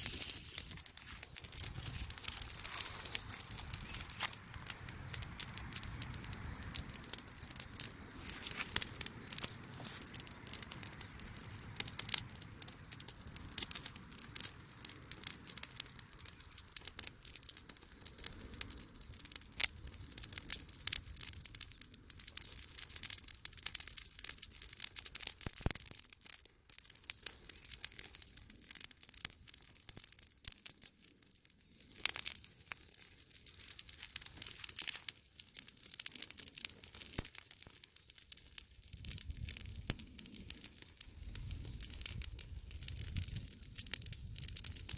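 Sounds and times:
dry leaves crackling and popping: 0:00.0 - 0:44.9.

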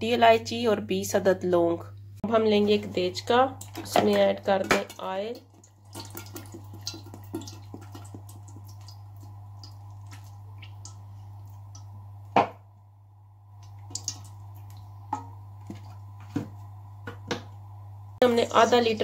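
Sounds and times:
small drips: 0:04.9 - 0:12.3, 0:13.5 - 0:16.0
oil pouring into metal pot: 0:05.4 - 0:11.9.

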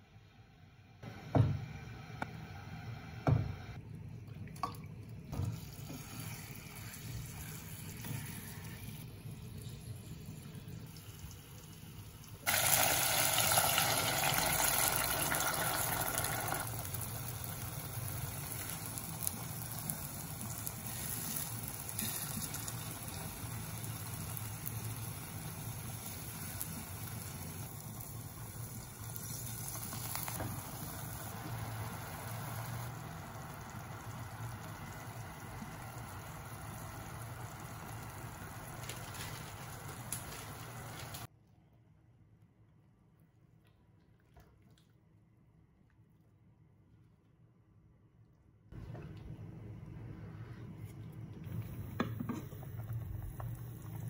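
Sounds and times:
kitchen knocks: 0:01.3 - 0:01.7
water running from tap: 0:10.9 - 0:24.8.

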